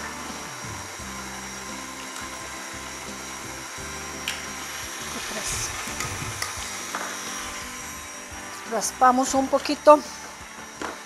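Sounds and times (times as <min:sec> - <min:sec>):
stand mixer beating batter: 0:00.0 - 0:11.0.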